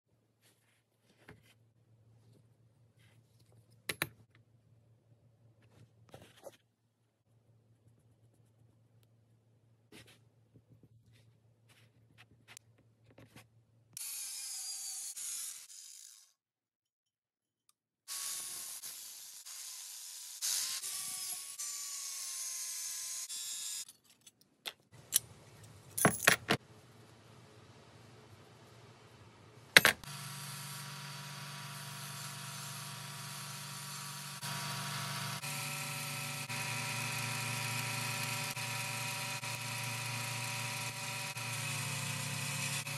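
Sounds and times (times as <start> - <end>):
angle grinder cutting steel: 14.0 - 16.4, 18.1 - 23.9, 30.0 - 42.9
bandsaw motor humming: 30.0 - 42.9.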